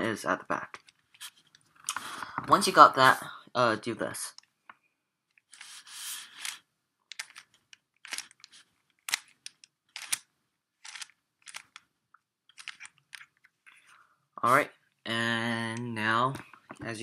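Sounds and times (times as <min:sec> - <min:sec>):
plastic puzzle cube clicking: 0:06.3 - 0:11.9, 0:12.5 - 0:13.5.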